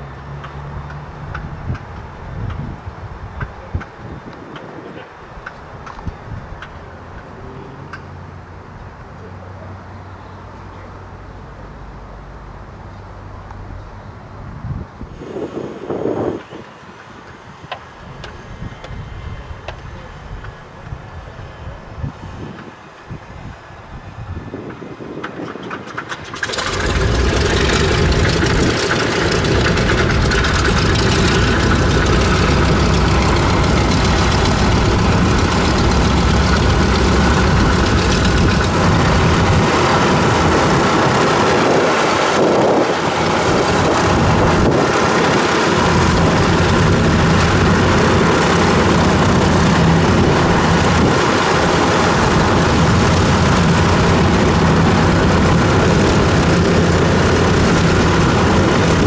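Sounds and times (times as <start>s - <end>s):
engine cranking: 25.6s - 40.0s
radial engines starting: 25.8s - 59.0s.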